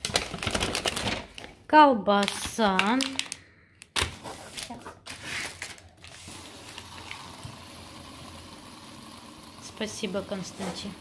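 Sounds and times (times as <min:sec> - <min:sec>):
toy top spinning on worktop: 0:06.1 - 0:11.0.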